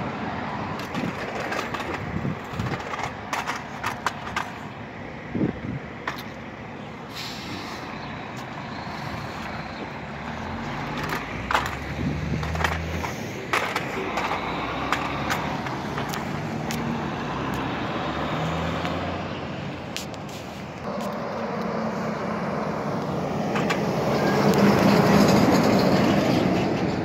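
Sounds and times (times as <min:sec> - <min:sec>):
diesel truck engine pulling away: 0:06.5 - 0:27.0
car passing: 0:07.4 - 0:20.0, 0:20.8 - 0:27.0.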